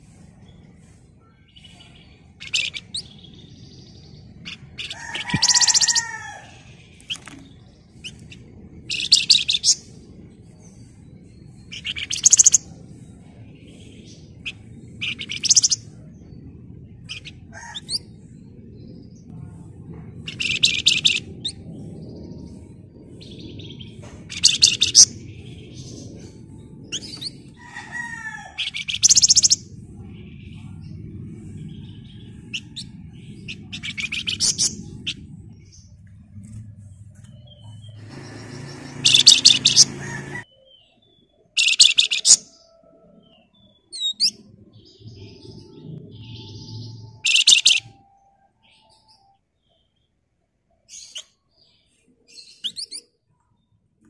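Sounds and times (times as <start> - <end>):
bird downward-curving notes: 0.0 - 50.0
bird high-pitched rattling trills: 1.6 - 12.8, 13.7 - 16.1, 20.2 - 29.6, 37.3 - 40.5, 46.2 - 48.0.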